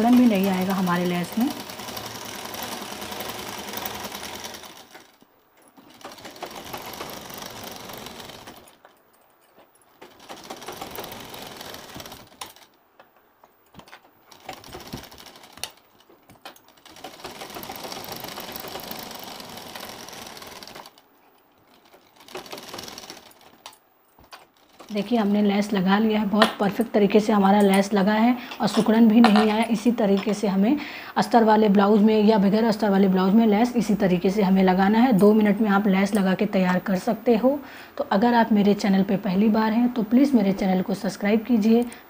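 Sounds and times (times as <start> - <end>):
sewing machine stitching: 0.0 - 8.9, 9.9 - 12.8, 13.8 - 28.0.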